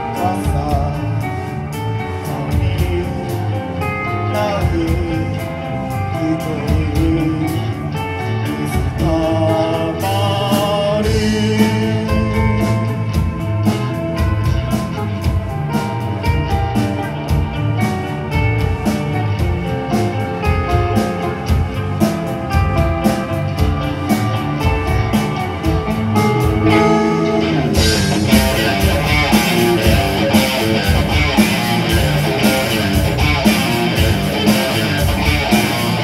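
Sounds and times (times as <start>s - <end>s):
man singing into a microphone: 0.0s - 13.1s
electric guitar: 0.0s - 36.0s
steady drum beat: 0.0s - 36.0s.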